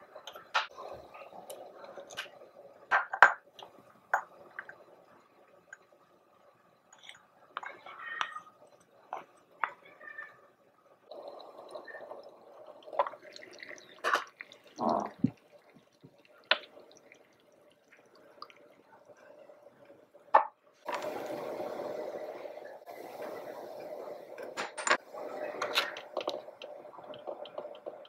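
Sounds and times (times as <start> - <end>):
liquid pouring into pot: 11.0 - 20.0.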